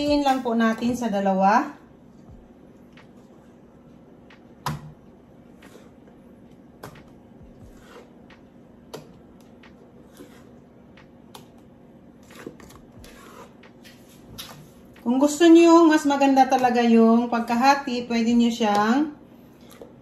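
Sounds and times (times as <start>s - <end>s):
faint steady hum: 0.0s - 20.0s
batter scraping metal bowl: 7.6s - 8.3s, 10.0s - 10.7s, 12.2s - 14.3s.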